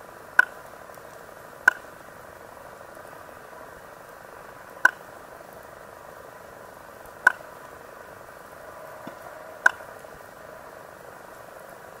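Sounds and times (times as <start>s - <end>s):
ray making sharp clicks: 1.7s - 1.9s.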